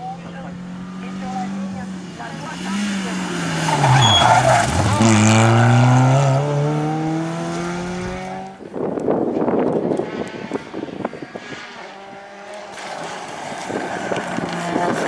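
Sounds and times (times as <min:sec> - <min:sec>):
car engine accelerating: 0:00.0 - 0:08.6, 0:09.9 - 0:15.0
distant car engine approaching: 0:00.0 - 0:08.6.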